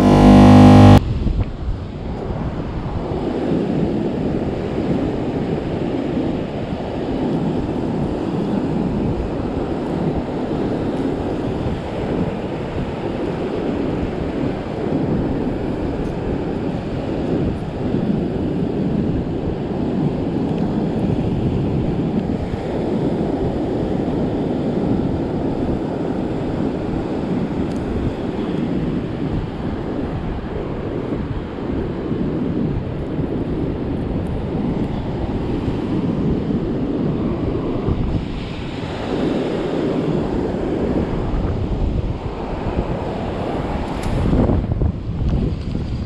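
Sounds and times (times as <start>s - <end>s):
surf breaking on beach: 0.0s - 1.0s
wind buffeting microphone: 1.0s - 46.0s.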